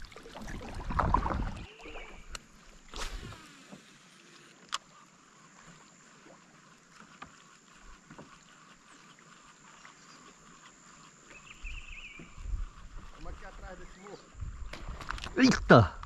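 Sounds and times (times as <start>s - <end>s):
light breeze: 0.0s - 16.0s
water lapping against kayak hull: 0.0s - 16.0s.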